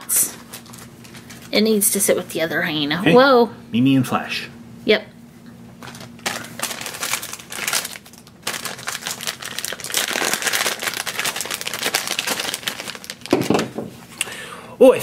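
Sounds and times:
foil bag crinkling: 0.1s - 1.7s, 5.8s - 13.8s.

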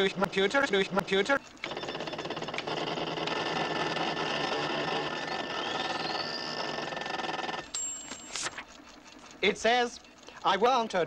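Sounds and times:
computer machine whirring: 0.0s - 11.0s
high electronic tone: 1.6s - 8.4s
rising whistle: 5.2s - 7.0s.

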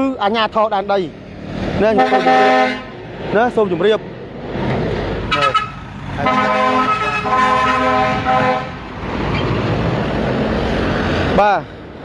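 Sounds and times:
dump trucks driving past: 0.0s - 12.0s
vehicle horn honking: 2.0s - 2.9s, 5.3s - 8.8s.

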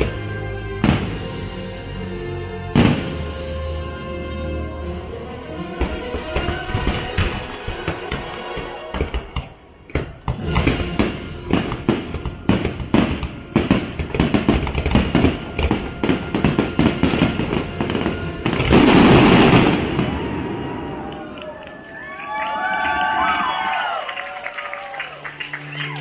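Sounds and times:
show music: 0.0s - 20.1s, 21.5s - 26.0s
fireworks bursting: 2.8s - 3.6s, 5.8s - 21.1s.

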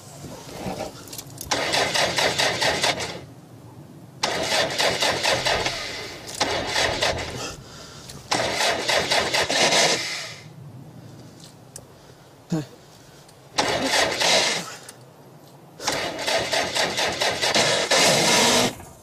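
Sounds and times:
car starter motor cranking: 1.3s - 3.2s, 4.2s - 10.2s, 13.6s - 14.7s, 15.8s - 18.8s.

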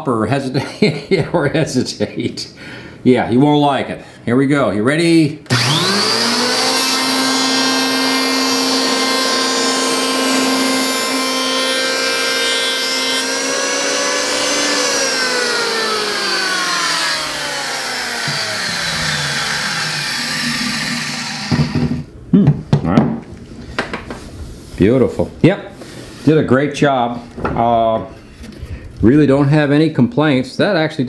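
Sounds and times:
electric planer whine: 5.5s - 22.0s.

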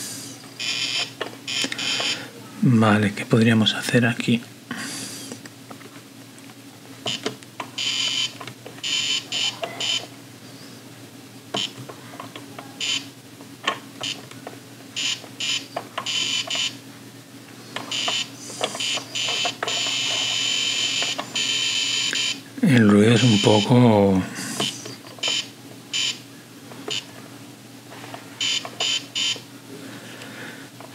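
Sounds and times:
electronic toy beeper buzzing: 0.6s - 2.2s, 7.8s - 10.1s, 12.8s - 13.1s, 15.0s - 16.8s, 17.9s - 22.4s, 25.2s - 26.2s, 28.4s - 29.4s.

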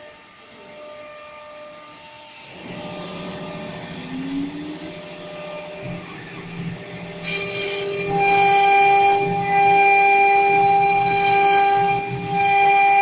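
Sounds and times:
mechanical hum: 0.0s - 13.0s
spindle motor whine: 0.0s - 13.0s.

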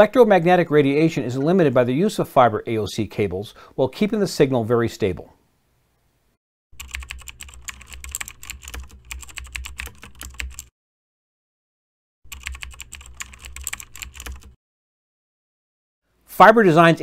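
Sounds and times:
rapid keyboard key clicks: 6.8s - 10.7s, 12.3s - 14.6s.

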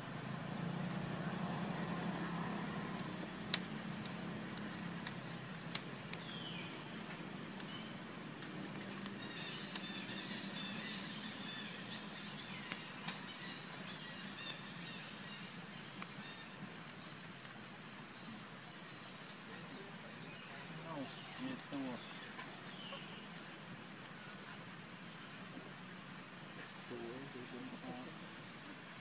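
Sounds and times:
low motor rumble: 0.0s - 6.6s.

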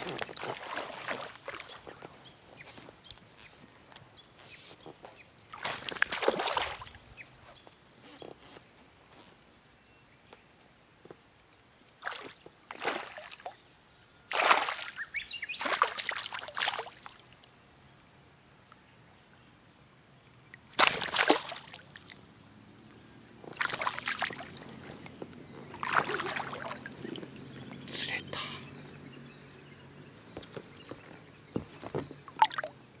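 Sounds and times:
fish thrashing and splashing: 0.0s - 1.9s, 5.5s - 6.9s, 14.3s - 15.0s, 15.6s - 17.0s, 20.7s - 22.2s, 23.4s - 27.5s.

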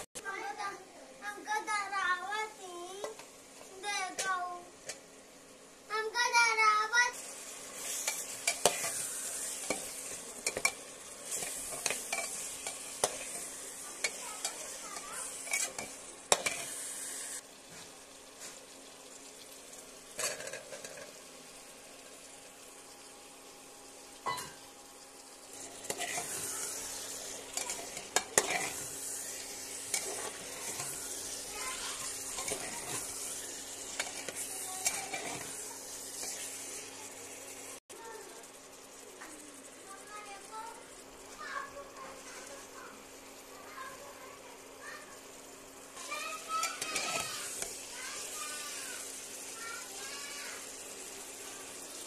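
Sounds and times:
vegetables sizzling in oil: 0.0s - 52.0s
ladle stirring and scraping pot: 7.2s - 16.8s, 25.6s - 36.8s, 46.6s - 47.8s.

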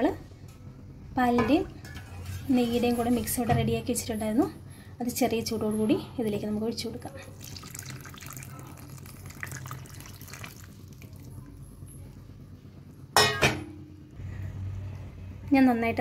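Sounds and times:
liquid trickling and splashing: 7.2s - 11.4s.

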